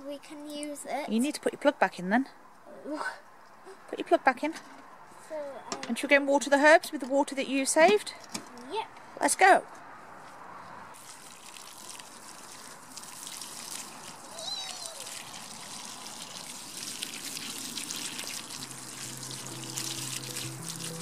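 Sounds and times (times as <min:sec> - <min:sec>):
water pouring from watering can: 0:11.0 - 0:21.0
water splashing onto soil: 0:11.0 - 0:21.0
soft background music: 0:18.7 - 0:21.0.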